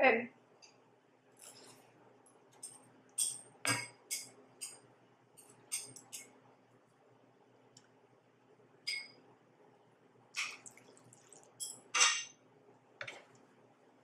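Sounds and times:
wet mouth and slurping sounds: 10.4 - 11.6.

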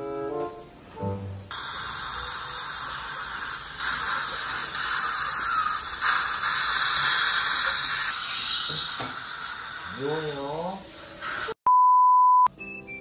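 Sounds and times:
dental handpiece water spray hissing: 1.5 - 11.6
dental suction: 1.5 - 11.6.

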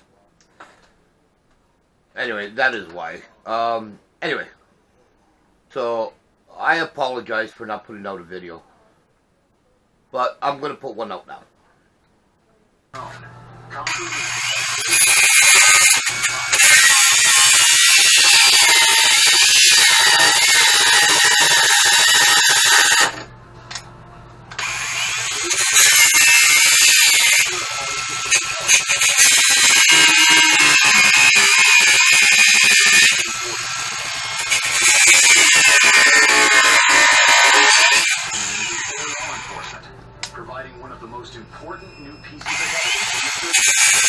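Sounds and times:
angle grinder grinding metal: 13.9 - 23.3, 24.5 - 39.8, 42.4 - 44.0.

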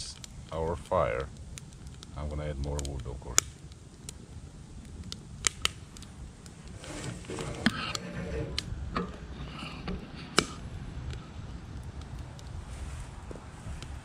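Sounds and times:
wind rumble on microphone: 0.0 - 14.0
wood fire crackling and popping: 0.0 - 14.0
rustling and knocking: 6.7 - 10.5.

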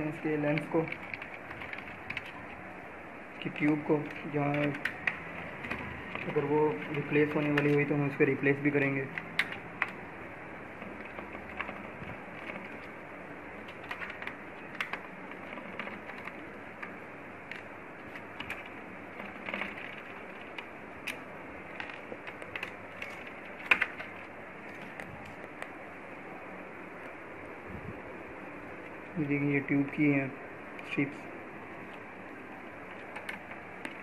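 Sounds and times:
small parts clicking and tapping: 13.6 - 25.7.

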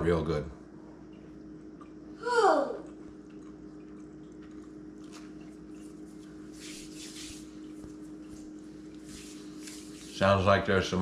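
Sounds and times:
low room hum: 0.0 - 11.0
person chewing bread: 2.8 - 6.6.

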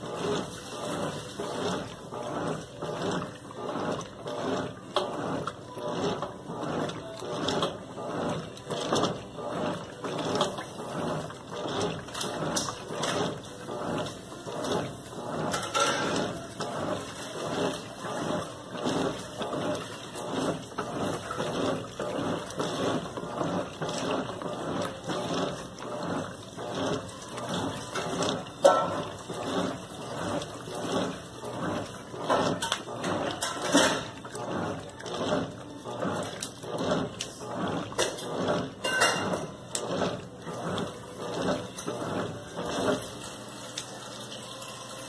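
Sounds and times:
washing machine drive running: 0.0 - 45.0
washing machine sloshing: 0.0 - 45.0.

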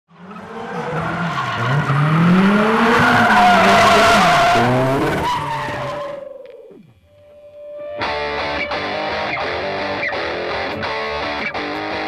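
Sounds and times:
car engine revving hard: 0.1 - 6.0
tyres squealing and skidding: 0.1 - 6.8.

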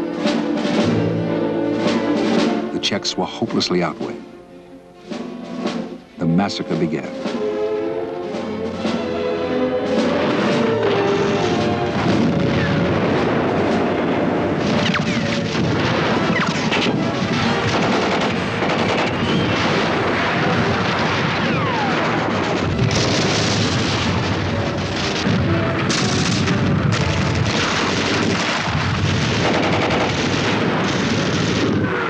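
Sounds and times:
music with held notes: 0.0 - 14.6
cannon booms: 9.8 - 32.0
crackling gunfire: 9.8 - 32.0
falling whistles: 19.1 - 19.6.

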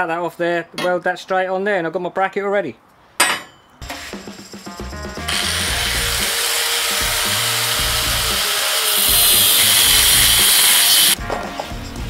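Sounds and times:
angle grinder cutting metal: 5.3 - 11.2.

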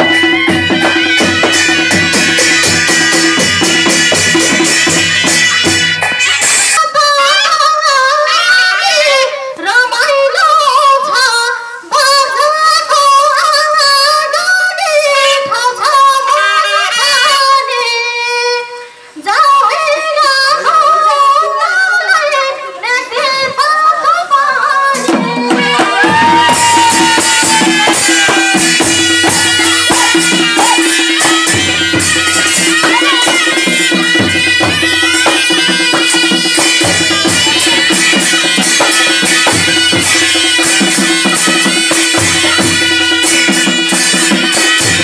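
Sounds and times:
clashing cymbals: 0.0 - 6.8, 25.0 - 45.0
drums: 0.0 - 7.8, 24.9 - 45.0
shehnai reed melody: 0.0 - 8.7, 24.9 - 45.0
woman singing into a microphone: 6.8 - 32.2.

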